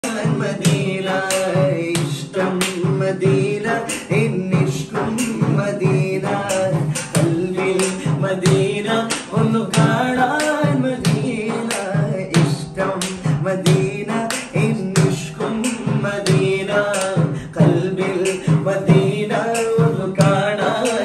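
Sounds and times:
men singing devotional song: 0.0s - 21.0s
sharp percussive beats: 0.0s - 21.0s.

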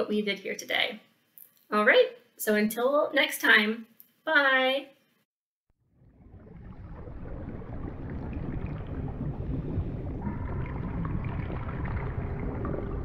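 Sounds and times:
underwater water rushing: 5.9s - 13.0s.

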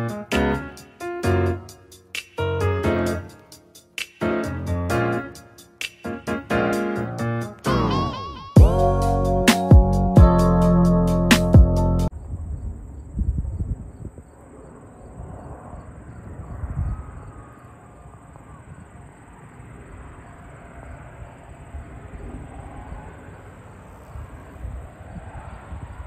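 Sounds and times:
wind rumbling on microphone: 12.1s - 26.0s
distant light aircraft engine droning: 14.0s - 26.0s.

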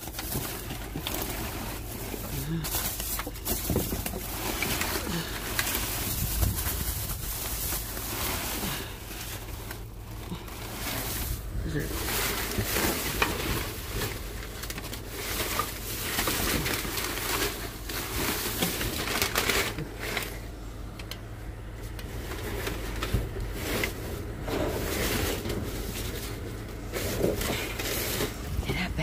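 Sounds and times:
packing paper rustling: 0.0s - 29.0s.

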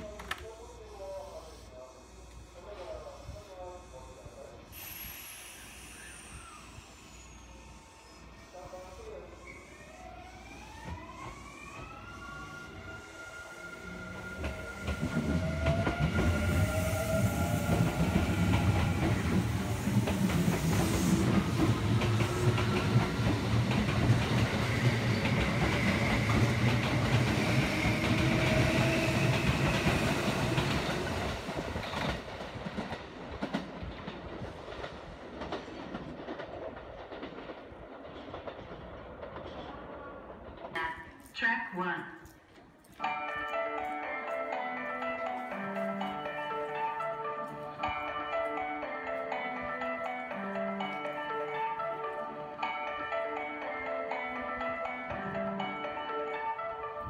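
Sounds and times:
high wheel squeal: 4.8s - 8.4s
train wheels rumbling on rails: 9.4s - 41.3s.

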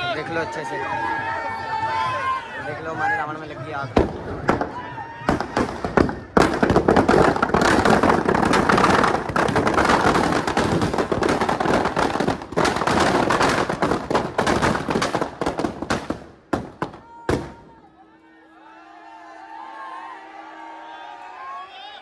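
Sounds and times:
firecrackers crackling: 3.5s - 17.8s.

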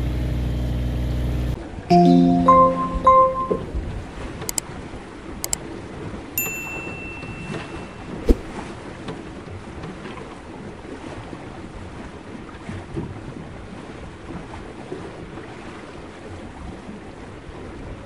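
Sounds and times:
wind and water noise: 1.5s - 18.0s
bell-like ding: 1.9s - 3.8s, 6.4s - 8.2s
sharp knock: 8.3s - 8.6s.

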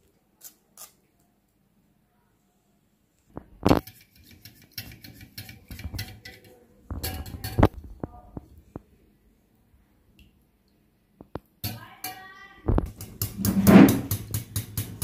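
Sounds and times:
whisk clinking against glass bowl: 3.8s - 7.6s, 12.9s - 15.0s.

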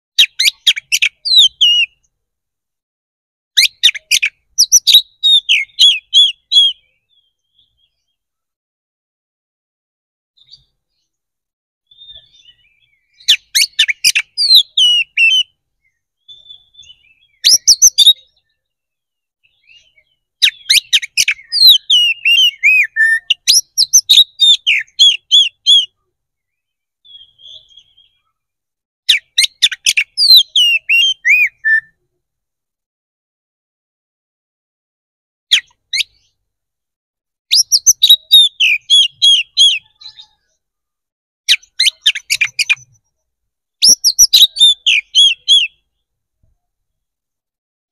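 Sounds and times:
songbird singing harsh clicks: 0.2s - 2.1s, 3.6s - 7.2s, 11.9s - 18.5s, 19.4s - 28.2s, 29.1s - 31.9s, 35.5s - 36.4s, 37.5s - 40.5s, 41.5s - 43.1s, 43.8s - 45.8s.

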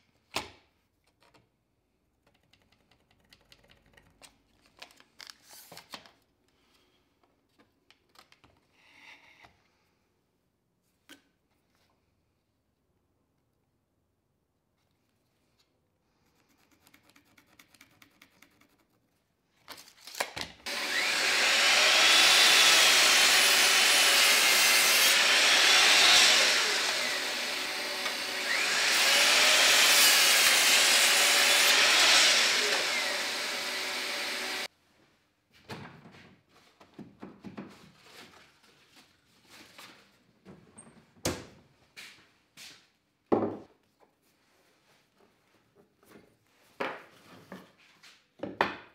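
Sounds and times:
mitre saw cutting wood: 20.7s - 34.7s.

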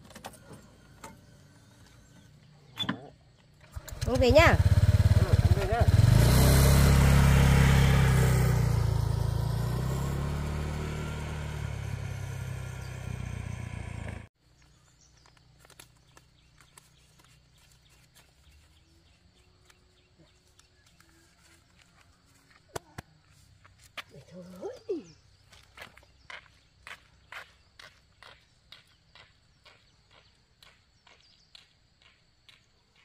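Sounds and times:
scooter engine pulling away: 3.6s - 14.3s.

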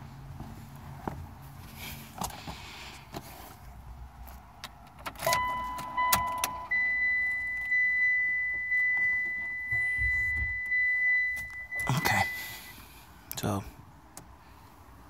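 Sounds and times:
car keys jingling: 4.7s - 12.7s
car warning beep: 5.2s - 12.8s.

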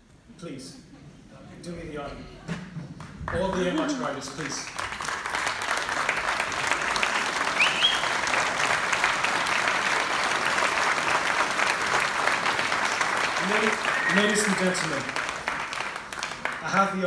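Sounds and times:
audience applauding: 2.9s - 17.0s
short rising whistle: 7.6s - 8.1s.

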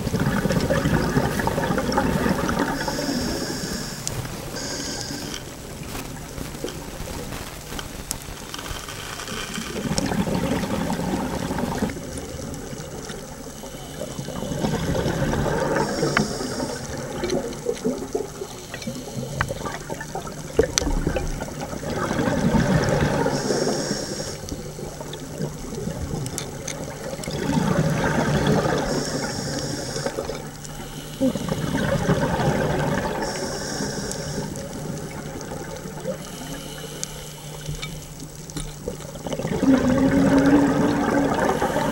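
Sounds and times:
exhaled bubbles rushing: 0.0s - 7.4s, 9.5s - 36.2s, 37.5s - 41.9s
faint steady hum: 0.0s - 41.9s
regulator inhale hiss: 2.6s - 5.6s, 13.1s - 20.0s, 22.9s - 25.5s, 28.2s - 35.2s, 35.9s - 38.5s, 41.2s - 41.9s.

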